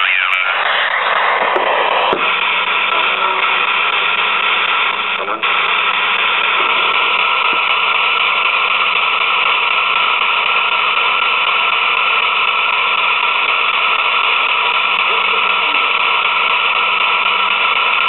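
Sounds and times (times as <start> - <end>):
radio static hiss: 0.0 - 18.0.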